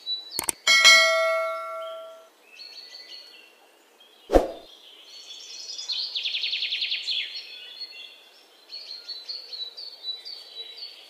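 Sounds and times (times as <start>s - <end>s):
songbirds singing and chirping: 0.0s - 11.0s.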